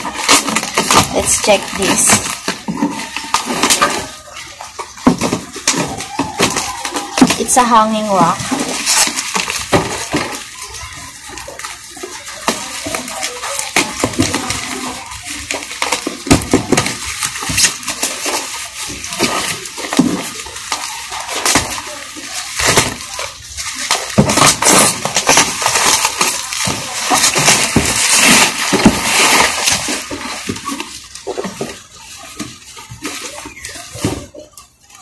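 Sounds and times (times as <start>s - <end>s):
cardboard scraping and tapping: 0.0s - 7.6s
plastic wrap crinkling and tearing: 0.0s - 35.0s.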